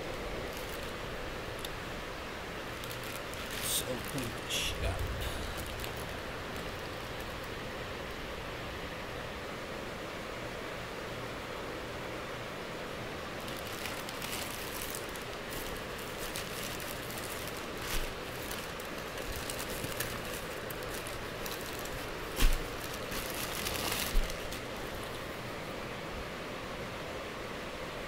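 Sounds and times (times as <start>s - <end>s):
plastic bag crinkling: 0.0s - 1.8s, 2.6s - 7.7s, 13.4s - 25.4s
steady hiss: 0.0s - 28.0s.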